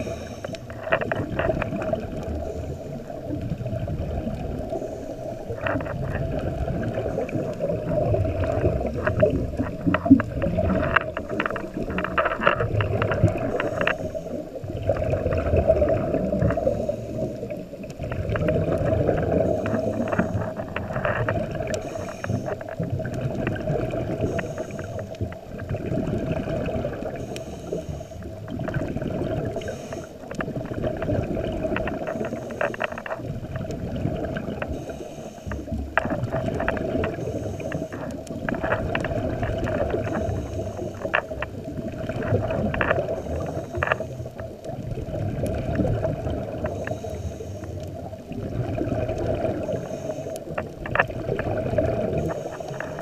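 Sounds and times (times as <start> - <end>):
regulator hiss breathing in: 0.0 - 0.7, 2.2 - 3.2, 4.6 - 5.6, 16.4 - 17.7, 19.2 - 20.6, 21.7 - 22.8, 24.2 - 25.2, 27.0 - 28.5, 29.4 - 30.3, 32.0 - 33.1, 34.6 - 36.0, 37.0 - 38.3, 39.7 - 41.5, 42.9 - 44.4, 46.6 - 48.1, 49.6 - 50.6, 52.0 - 53.0
rush of bubbles: 0.0 - 27.3, 28.2 - 34.9, 35.8 - 47.1, 48.0 - 53.0.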